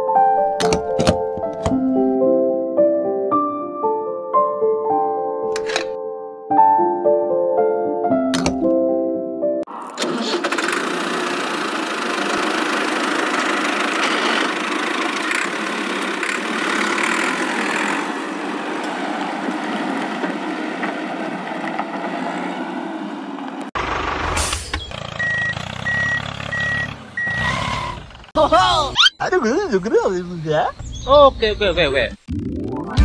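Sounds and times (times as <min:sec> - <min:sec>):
steady engine running: 0:10.0 - 0:18.5, 0:23.8 - 0:26.4
deeper engine rumble: 0:23.7 - 0:29.4
regular beeps: 0:24.8 - 0:27.5.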